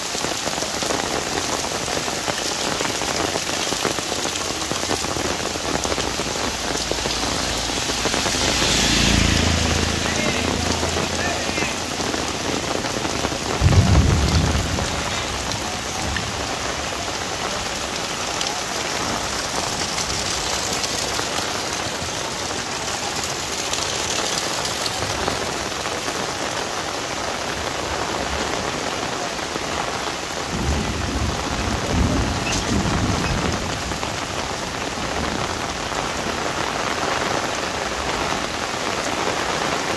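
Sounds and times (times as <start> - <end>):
heavy rain on an umbrella: 0.0 - 39.9
low thunder rumbles: 11.8 - 21.2, 30.4 - 36.3.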